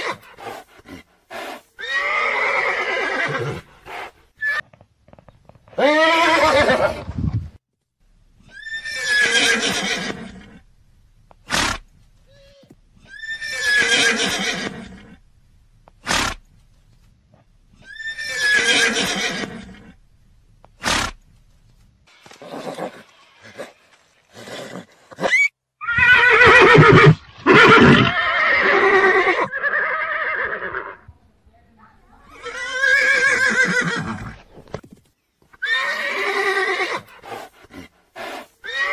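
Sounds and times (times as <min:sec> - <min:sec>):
horse neighing: 0:01.8 - 0:03.6, 0:05.8 - 0:07.1, 0:24.4 - 0:31.0, 0:32.2 - 0:34.6, 0:38.6 - 0:38.9.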